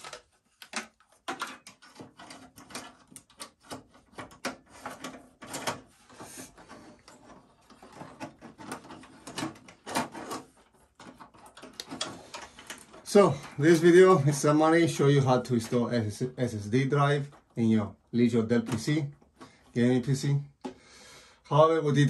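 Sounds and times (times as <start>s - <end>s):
clicks taps and rustling: 0.0s - 16.0s.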